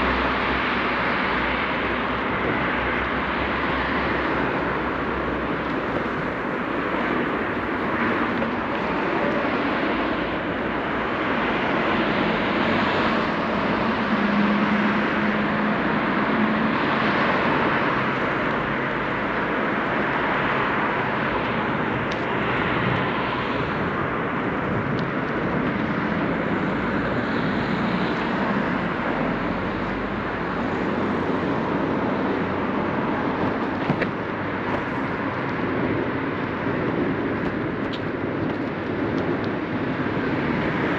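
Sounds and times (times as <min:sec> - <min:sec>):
road traffic noise: 0:00.0 - 0:40.9.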